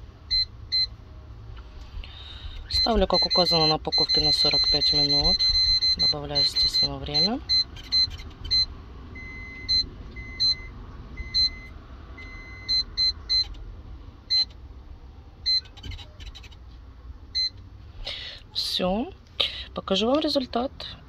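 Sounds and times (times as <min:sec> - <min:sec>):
button beeps: 0:02.7 - 0:13.6, 0:14.3 - 0:14.5, 0:15.5 - 0:16.0.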